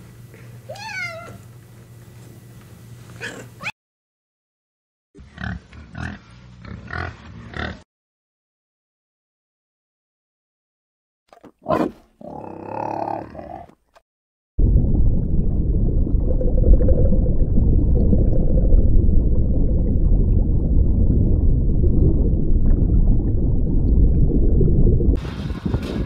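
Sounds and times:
warthog grunts: 11.6s - 13.8s
loud low rumble: 14.6s - 26.0s.

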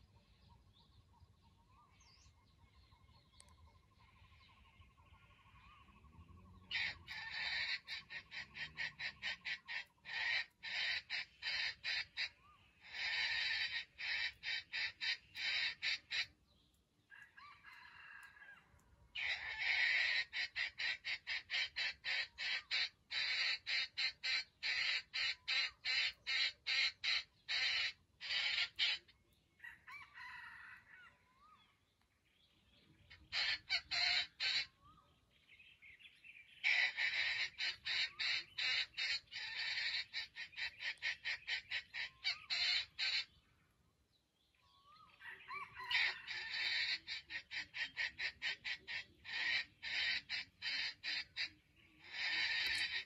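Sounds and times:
junglefowl rapid clucking: 4.8s - 16.4s, 17.1s - 31.2s, 33.1s - 34.8s, 36.6s - 43.4s, 45.1s - 53.0s
junglefowl rising and falling calls: 5.4s - 16.4s, 17.1s - 31.6s, 33.1s - 34.8s, 36.6s - 43.3s, 45.1s - 53.0s.

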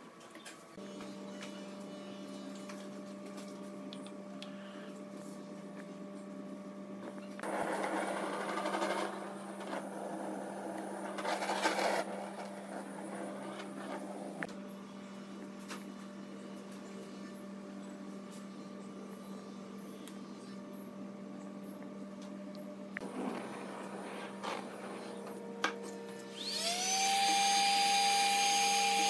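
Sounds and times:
electric power tool running: 26.1s - 29.0s.

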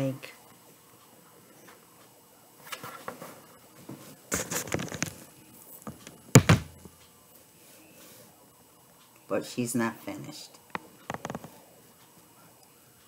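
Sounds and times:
sharp thump: 6.4s - 6.8s.

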